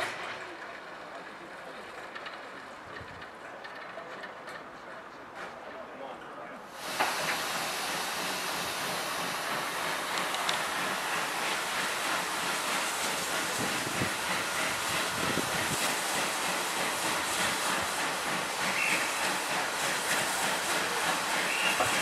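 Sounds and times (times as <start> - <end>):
steam hissing from locomotive: 6.7 - 22.0.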